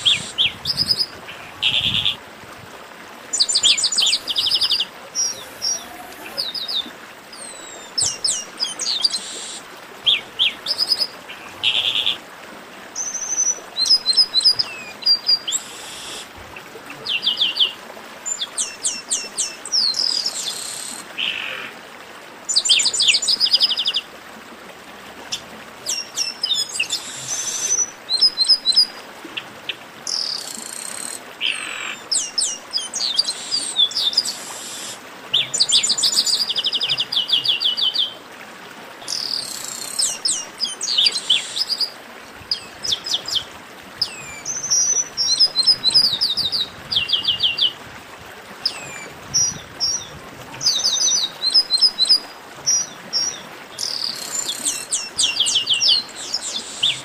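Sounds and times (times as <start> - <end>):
blackbirds singing: 3.4 - 12.2, 42.5 - 47.8, 48.6 - 57.0.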